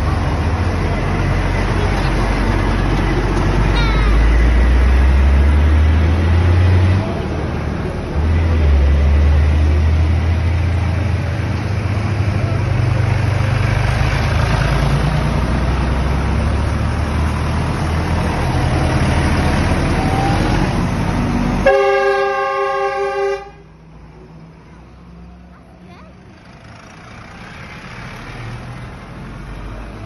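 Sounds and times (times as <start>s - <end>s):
tractor engines passing: 0.0s - 30.0s
vehicle horn: 21.6s - 23.7s.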